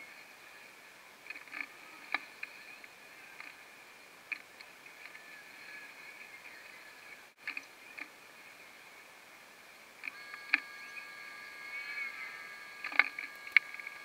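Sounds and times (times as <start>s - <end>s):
high-pitched whine: 0.0s - 14.0s.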